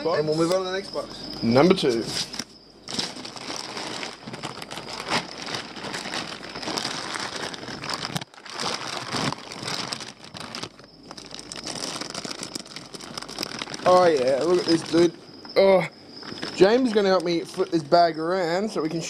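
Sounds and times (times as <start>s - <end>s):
plastic bags and newspaper rustling: 1.9s - 15.2s, 16.2s - 18.2s.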